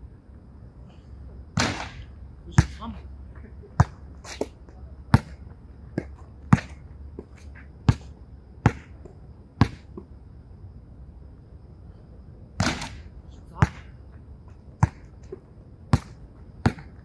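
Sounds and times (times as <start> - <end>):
ball hitting backboard and rim: 1.6 - 2.8, 8.6 - 8.9, 12.6 - 13.9
basketball bouncing: 7.9 - 9.0, 15.9 - 17.0.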